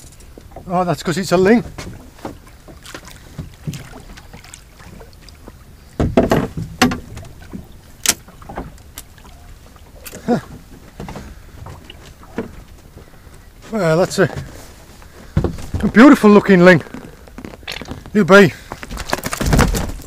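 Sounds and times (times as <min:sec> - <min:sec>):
knocks and clicks on a boat: 0:00.0 - 0:20.0
water: 0:00.0 - 0:20.0
wind: 0:00.0 - 0:20.0
thumps: 0:06.0 - 0:08.7, 0:18.8 - 0:20.0.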